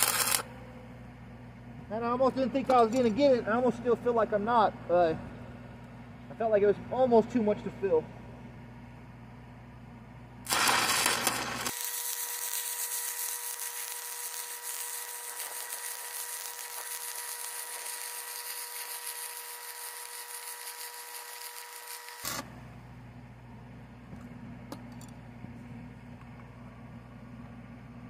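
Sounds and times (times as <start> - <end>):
welding arc crackle and hiss: 0.0 - 0.5, 10.4 - 22.5
faint steady whine: 0.0 - 28.0.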